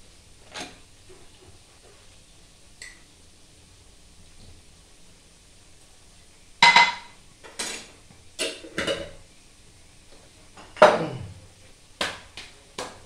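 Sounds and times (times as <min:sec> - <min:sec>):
metal utensils and cookware clattering: 0:06.6 - 0:09.2.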